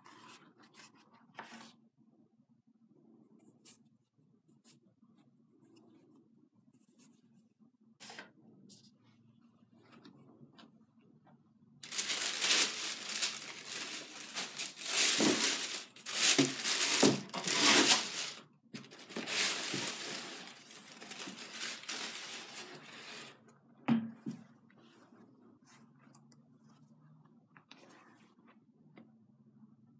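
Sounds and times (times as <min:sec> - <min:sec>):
tissue paper rustling and crinkling: 0:11.8 - 0:23.4.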